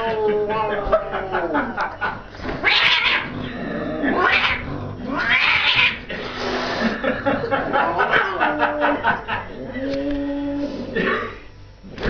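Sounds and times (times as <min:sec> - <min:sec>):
cat yowling and hissing: 0:02.6 - 0:03.3, 0:04.1 - 0:06.8.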